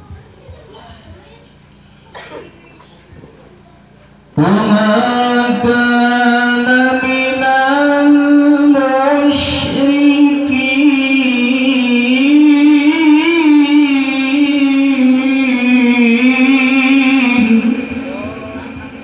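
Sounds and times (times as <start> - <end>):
man reciting through a microphone: 4.4 - 19.0.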